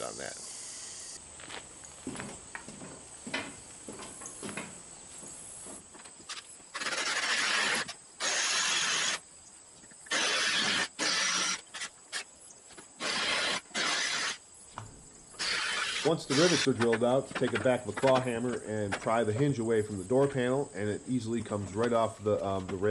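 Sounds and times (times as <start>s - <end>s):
footsteps on wooden floor: 1.4s - 6.2s
power drill boring: 6.8s - 9.2s, 10.1s - 12.2s, 13.0s - 14.4s, 15.4s - 16.7s.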